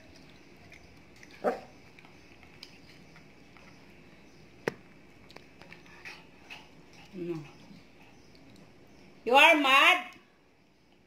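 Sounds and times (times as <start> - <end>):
dog barking: 1.4 - 1.7.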